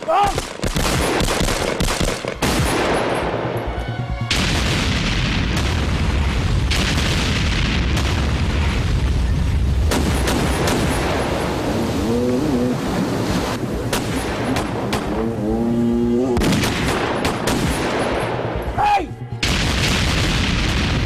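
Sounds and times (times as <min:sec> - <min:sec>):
gunshots: 0:00.0 - 0:03.6, 0:04.3 - 0:09.0, 0:09.8 - 0:11.7, 0:13.9 - 0:15.3, 0:16.4 - 0:18.6, 0:19.4 - 0:21.0
loud explosion rumbling: 0:04.3 - 0:12.0, 0:19.4 - 0:21.0.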